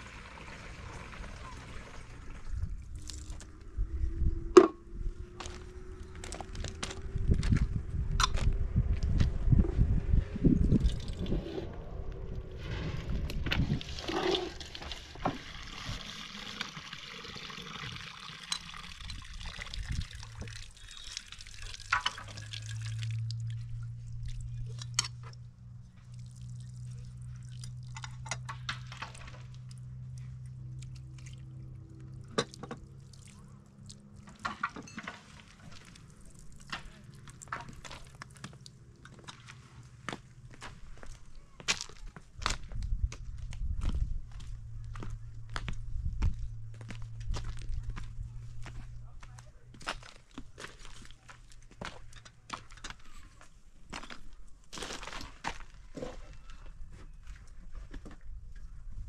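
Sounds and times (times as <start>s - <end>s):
low hum: 0.6s - 15.9s, 21.4s - 41.6s, 42.3s - 52.2s.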